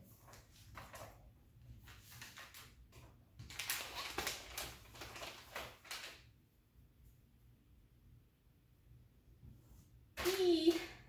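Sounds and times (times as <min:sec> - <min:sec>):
packaging rustling and crinkling: 0:03.4 - 0:06.3.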